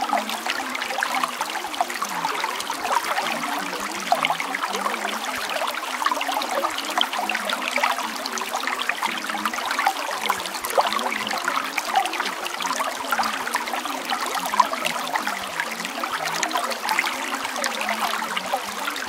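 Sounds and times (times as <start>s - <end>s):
water trickling and babbling: 0.0s - 19.0s.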